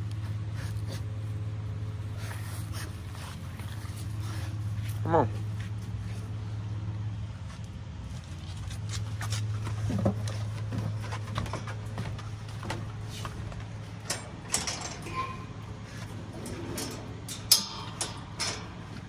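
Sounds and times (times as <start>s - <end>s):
steady low hum: 0.0s - 19.0s
metal kennel panels clanking: 10.0s - 19.0s.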